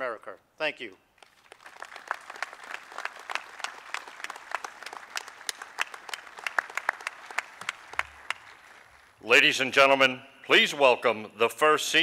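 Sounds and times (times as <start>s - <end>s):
audience applauding: 1.2s - 9.2s.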